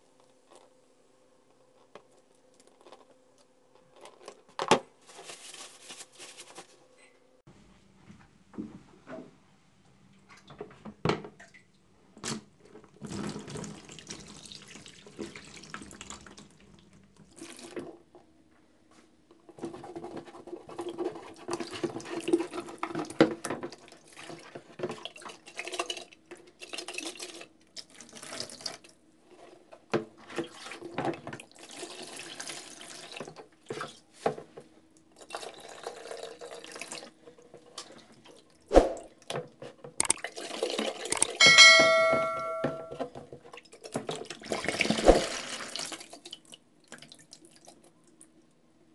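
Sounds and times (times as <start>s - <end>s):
water pouring and sloshing: 12.6s - 18.0s, 19.6s - 34.4s, 35.1s - 41.4s, 43.1s - 48.3s.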